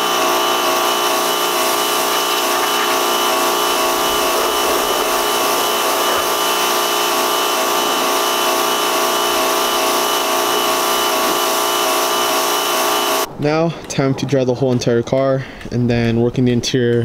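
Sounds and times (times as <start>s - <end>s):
pressure washer motor whine: 0.0s - 13.3s
water spraying against car: 0.0s - 13.3s.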